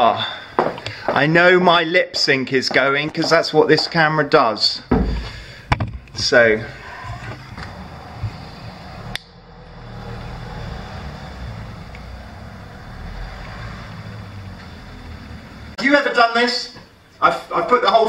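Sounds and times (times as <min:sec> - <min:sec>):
road traffic rumble: 0:05.2 - 0:15.8.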